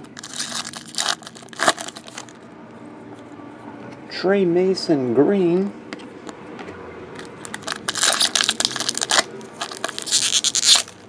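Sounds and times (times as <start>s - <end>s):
foil wrapper crinkling and tearing: 0.0s - 2.4s, 7.2s - 11.0s.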